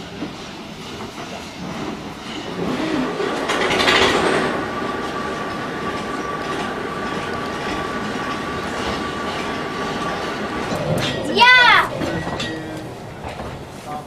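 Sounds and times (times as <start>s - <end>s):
steam locomotive running: 0.0s - 14.0s
loud rush of steam: 1.4s - 6.7s.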